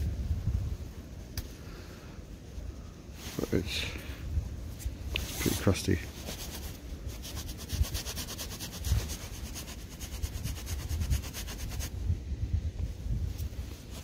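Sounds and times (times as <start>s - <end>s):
fingers rubbing soil off coin: 5.4s - 11.9s.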